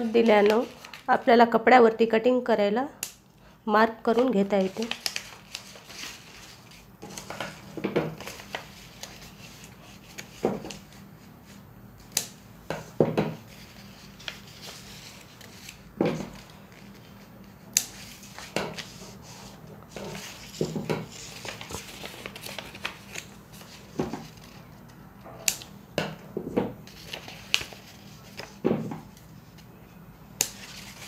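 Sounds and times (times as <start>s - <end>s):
paper handled and pressed flat: 0.0s - 1.2s, 4.2s - 11.0s, 13.4s - 24.6s, 26.8s - 29.2s
scissors snipping paper: 30.4s - 31.0s.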